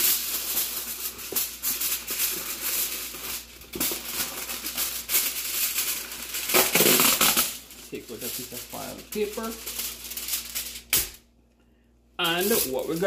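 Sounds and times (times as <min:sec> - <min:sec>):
aluminium foil crinkling: 0:00.0 - 0:11.1, 0:12.2 - 0:13.0.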